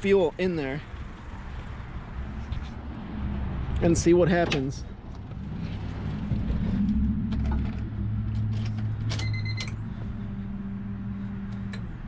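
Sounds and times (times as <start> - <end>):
short beep: 9.2 - 9.8.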